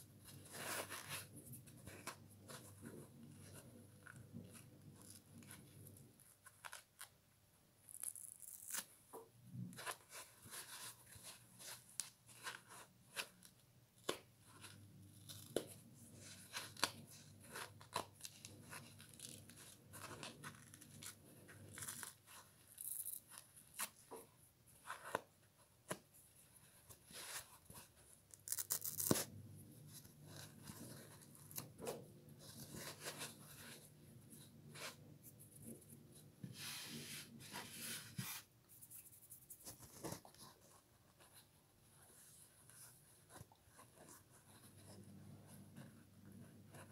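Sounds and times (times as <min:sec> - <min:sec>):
foam sponge tearing: 0:07.9 - 0:08.9.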